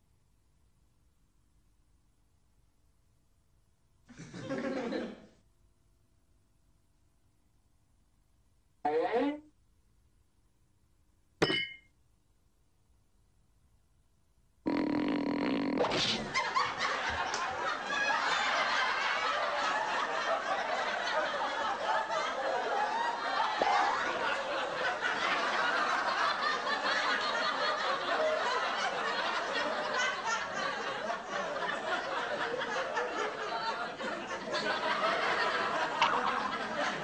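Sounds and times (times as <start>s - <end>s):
crowd laughing: 4.1s - 5.3s, 16.0s - 37.0s.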